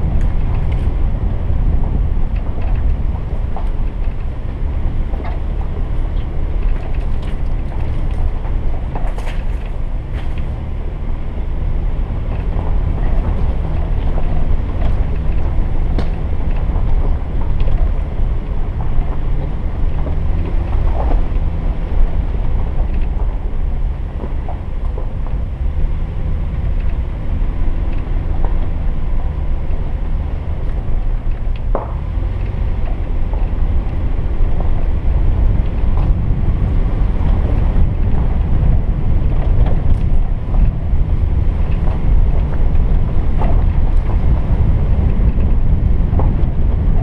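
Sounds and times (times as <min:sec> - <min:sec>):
vehicle engine and road rumble: 0:00.0 - 0:47.0.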